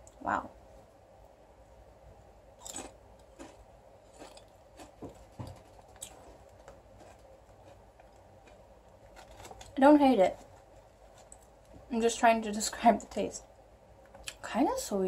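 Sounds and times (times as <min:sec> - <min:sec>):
potato chips being chewed: 0:02.5 - 0:11.7.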